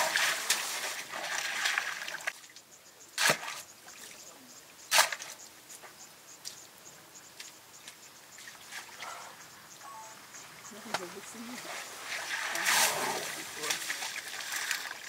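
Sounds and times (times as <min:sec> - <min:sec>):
crackles of mud and grass: 0:10.6 - 0:15.0.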